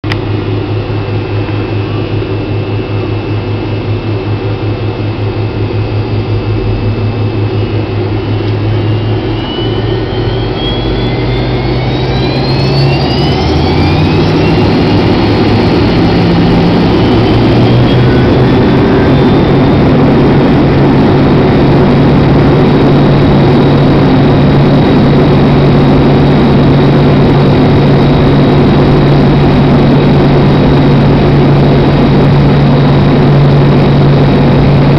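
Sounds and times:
rising engine whine: 0:00.0 - 0:34.9
jet engine spooling up: 0:00.1 - 0:34.9.

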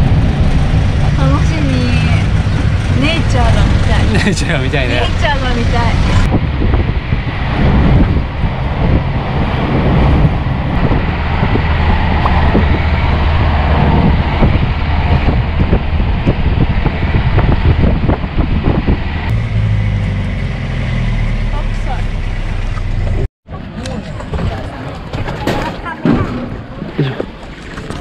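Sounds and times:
wind buffeting microphone: 0:00.0 - 0:19.5
truck engine and road rumble: 0:00.0 - 0:28.0.

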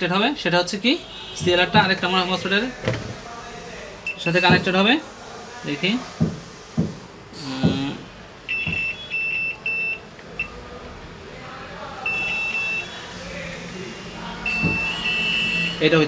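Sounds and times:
multimeter continuity beeps: 0:04.0 - 0:04.6, 0:08.5 - 0:10.6, 0:12.0 - 0:13.1, 0:14.4 - 0:15.8.

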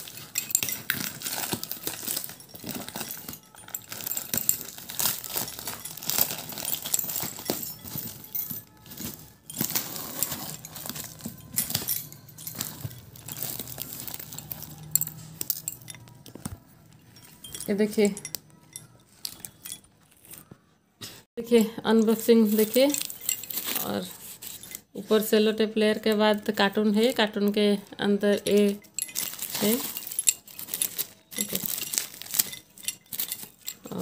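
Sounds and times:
packing tape and cardboard tearing: 0:00.0 - 0:08.2, 0:08.8 - 0:11.9.

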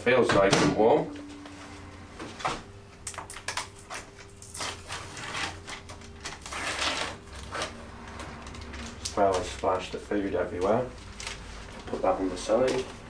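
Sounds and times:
faint steady hum: 0:00.0 - 0:13.0
plastic film crinkling and crackling: 0:03.0 - 0:13.0.

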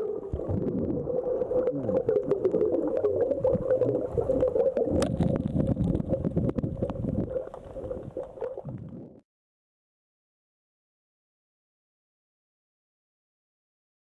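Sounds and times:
low water rumble: 0:00.0 - 0:09.2
underwater crackling clicks: 0:01.4 - 0:09.1.

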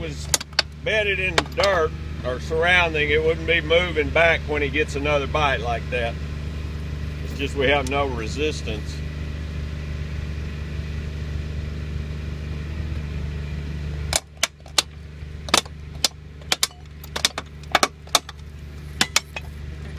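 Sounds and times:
engine running: 0:00.0 - 0:19.9
metallic cracks of pipe fracturing: 0:14.2 - 0:19.5.

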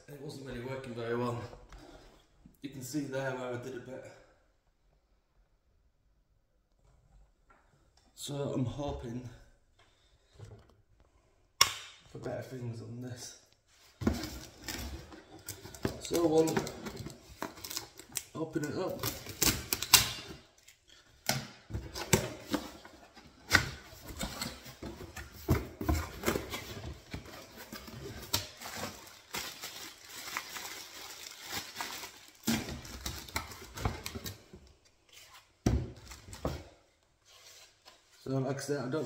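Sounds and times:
cardboard packaging rustling: 0:13.8 - 0:20.9, 0:21.8 - 0:37.8.

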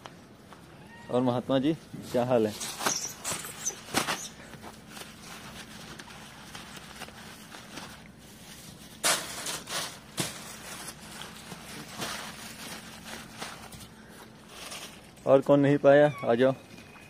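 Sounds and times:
faint steady hum: 0:00.0 - 0:17.0
rustling crunches on dry straw: 0:02.1 - 0:15.4.

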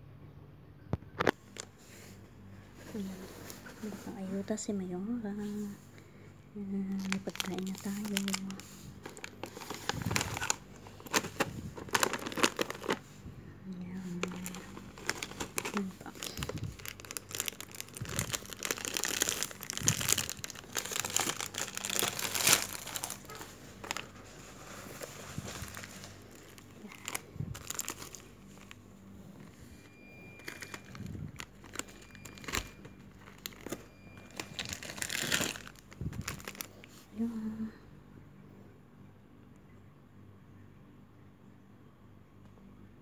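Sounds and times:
plastic wrappers crinkling: 0:06.7 - 0:13.1, 0:13.8 - 0:37.1.

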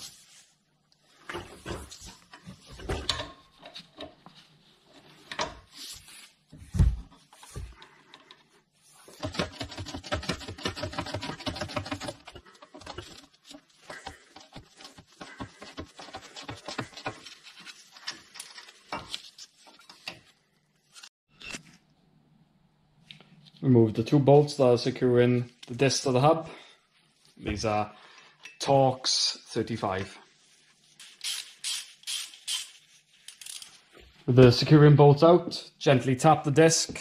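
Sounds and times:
ratchet clicking: 0:31.2 - 0:32.7.

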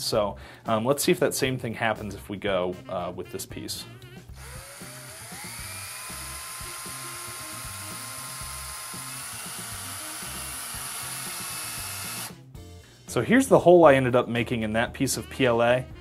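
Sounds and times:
power drill whining: 0:04.4 - 0:12.4.

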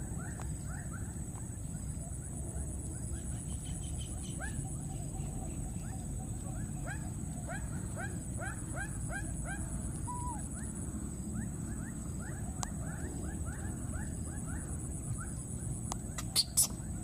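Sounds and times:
baby monkey crying: 0:10.1 - 0:10.4, 0:16.2 - 0:16.8.

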